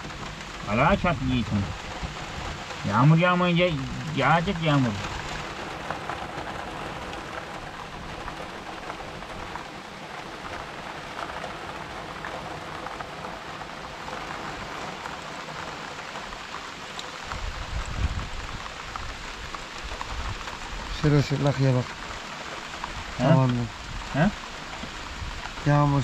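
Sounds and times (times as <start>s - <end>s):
heavy rain pouring: 0.0s - 26.0s.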